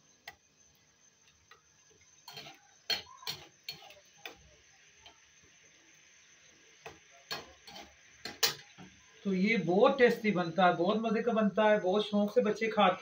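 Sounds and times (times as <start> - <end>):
metal spatula scraping a metal pan: 2.2 - 4.4, 7.3 - 8.7.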